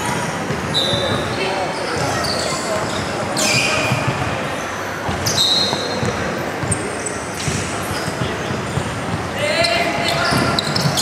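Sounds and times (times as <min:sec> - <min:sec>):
noise of players and spectators: 0:00.0 - 0:11.0
short high squeaks: 0:00.7 - 0:04.1, 0:05.2 - 0:06.0
basketball bouncing on wooden floor: 0:05.0 - 0:06.8.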